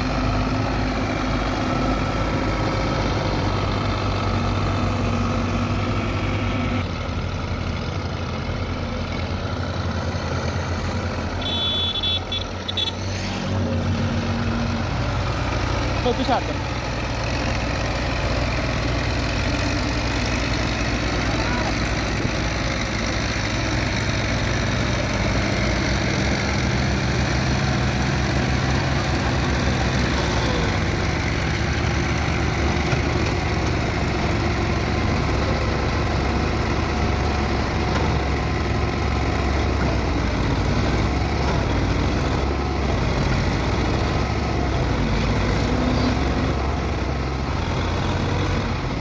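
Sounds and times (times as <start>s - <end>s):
tractor diesel engine under load: 0.0s - 49.0s.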